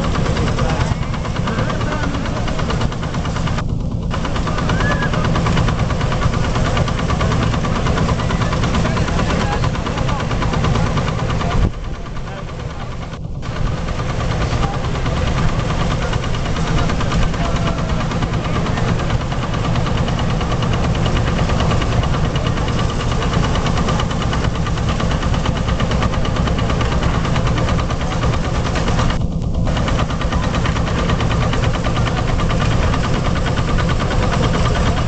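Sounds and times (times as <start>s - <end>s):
threshing machine droning and rattling: 0.0s - 35.0s.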